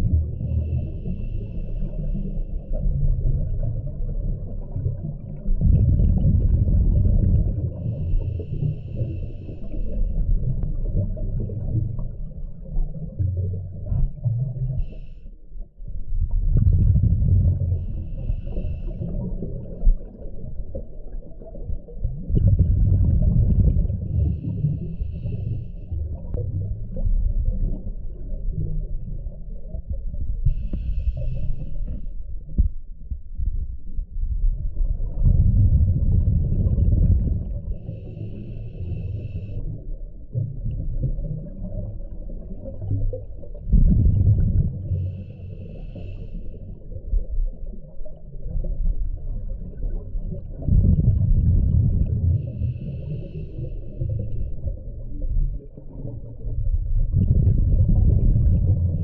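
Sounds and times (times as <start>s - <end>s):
exhaled bubbles underwater: 0.0s - 59.0s
regulator inhale hiss: 0.5s - 2.7s, 7.8s - 10.2s, 14.7s - 15.4s, 17.9s - 19.3s, 24.2s - 26.0s, 30.5s - 32.1s, 37.8s - 39.8s, 44.9s - 46.8s, 52.4s - 54.5s.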